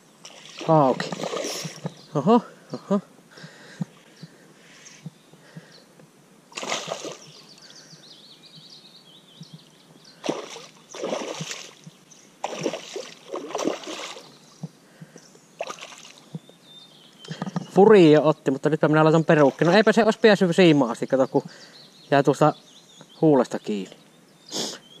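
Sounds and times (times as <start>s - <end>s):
fish splashing at water surface: 6.5s - 7.3s, 10.2s - 14.4s, 15.6s - 16.2s.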